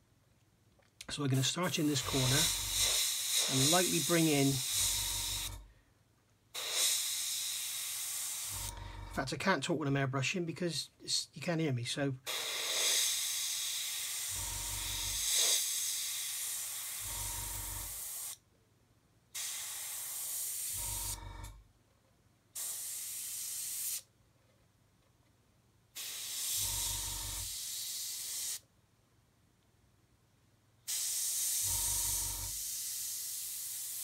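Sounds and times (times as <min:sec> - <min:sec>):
airbrush hissing: 0:01.3 - 0:05.7, 0:06.6 - 0:08.8, 0:12.3 - 0:18.4, 0:19.4 - 0:21.2, 0:22.6 - 0:24.1, 0:26.0 - 0:28.6, 0:30.9 - 0:34.0.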